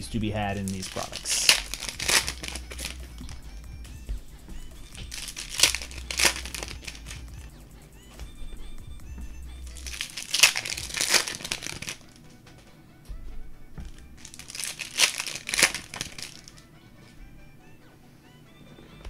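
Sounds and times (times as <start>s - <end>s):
quiet background music: 0.0s - 19.0s
plastic wrappers crinkling and tearing: 0.4s - 3.5s, 4.8s - 7.5s, 9.6s - 12.2s, 13.9s - 16.6s.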